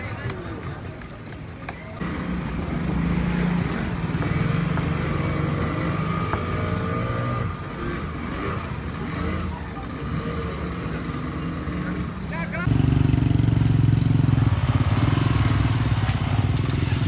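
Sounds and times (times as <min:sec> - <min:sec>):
motor scooter passing by: 0:12.7 - 0:17.0.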